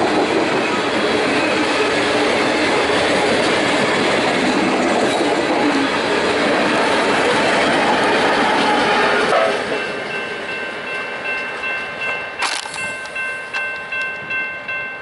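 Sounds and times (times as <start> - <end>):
train wheels passing: 0.0 - 15.0
crossing warning bell ringing: 8.6 - 15.0.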